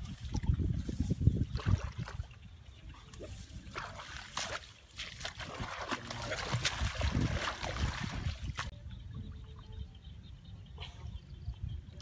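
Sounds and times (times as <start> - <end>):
water splashing: 3.0 - 8.7.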